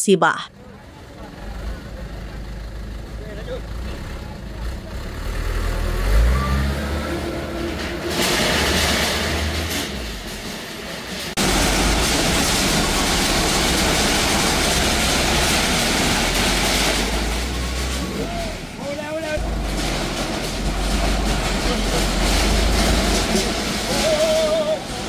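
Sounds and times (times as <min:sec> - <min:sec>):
truck engine revving: 0:00.6 - 0:25.0
loud rushing noise: 0:06.6 - 0:25.0.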